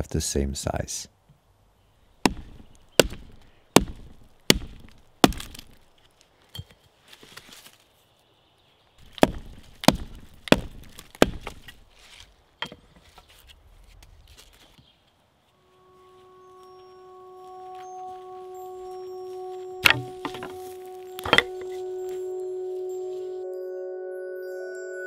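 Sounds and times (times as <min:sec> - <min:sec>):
axe chopping branch: 0:02.2 - 0:05.8, 0:09.0 - 0:12.2, 0:19.8 - 0:20.6.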